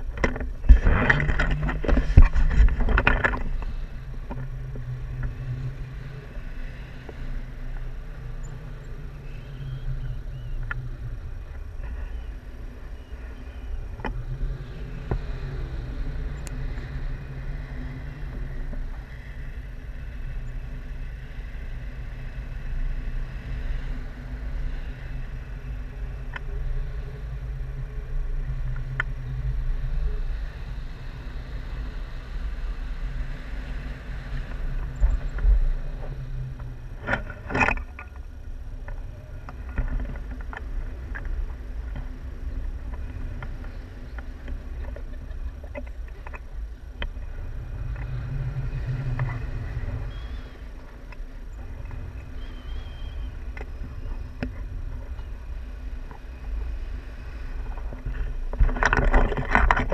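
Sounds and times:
sharp clicks and rattle: 0.0s - 4.5s
faint ticks: 0.0s - 59.9s
wind rumble on microphone: 0.0s - 59.9s.

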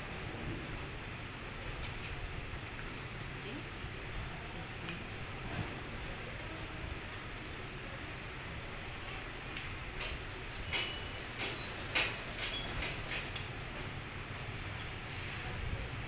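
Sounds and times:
scissors snipping cloth: 1.6s - 2.9s, 4.5s - 5.1s.

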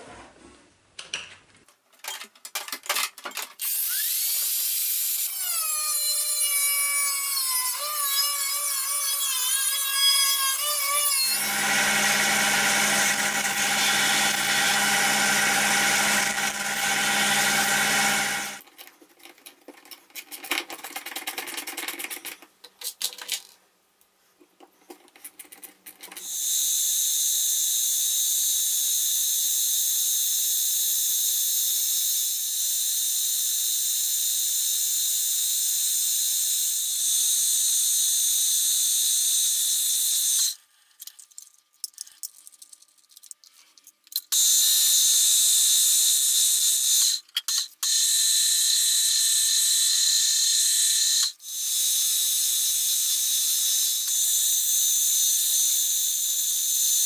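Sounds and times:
angle grinder cutting metal: 3.6s - 18.6s, 44.3s - 57.0s
milling machine whine: 11.4s - 18.6s
hand tool scraping and clicking: 40.4s - 44.4s, 47.0s - 48.0s.

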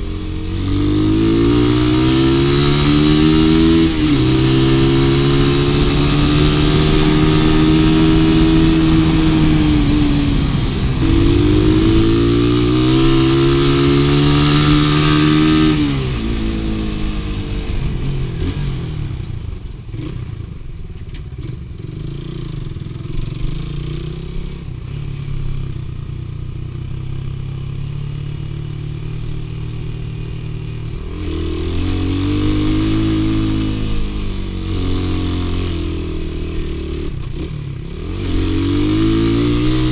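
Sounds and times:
motorcycle engine revving: 0.0s - 39.9s
gear change: 3.1s - 15.4s.

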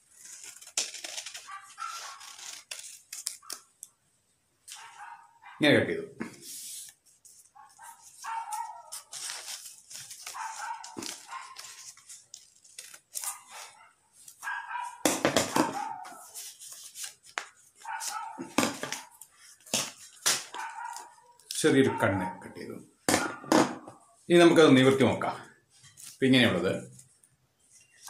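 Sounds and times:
scissors cutting paper: 0.1s - 3.7s, 7.8s - 13.7s.

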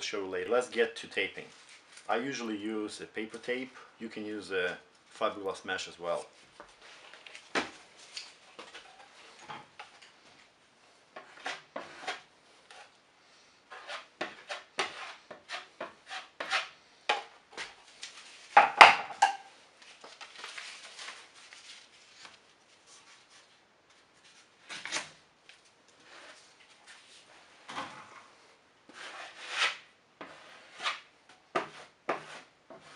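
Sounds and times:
metal taping knife scraping: 11.2s - 13.0s, 13.7s - 17.8s, 28.9s - 32.9s.

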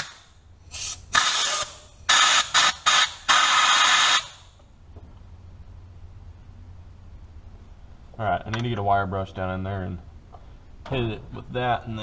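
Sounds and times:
compressed air blasts: 0.0s - 4.6s.

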